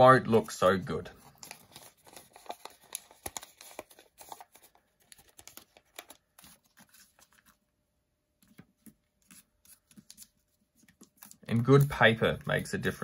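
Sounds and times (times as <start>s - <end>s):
paper crackling under fingers: 1.2s - 7.6s.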